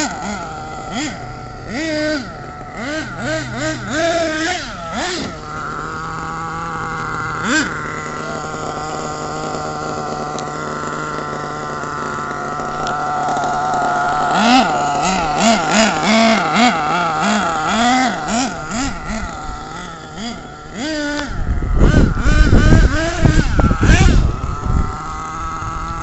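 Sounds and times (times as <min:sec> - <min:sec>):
rc truck motor revving: 0:00.0 - 0:26.0
wind rumble on microphone: 0:21.2 - 0:26.0.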